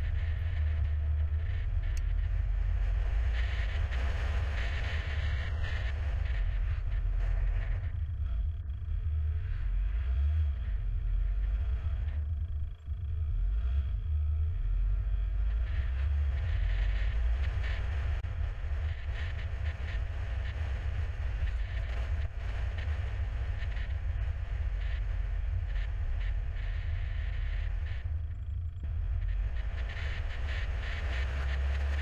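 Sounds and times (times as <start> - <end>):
road and tyre noise: 13.3 - 32.0.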